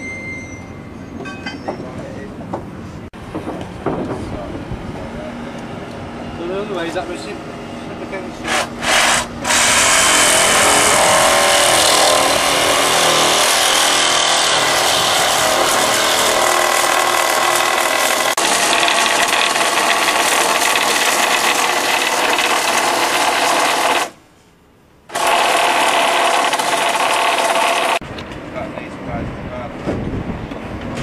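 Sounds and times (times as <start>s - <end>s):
power tool rattling: 8.5s - 24.2s, 25.1s - 28.0s.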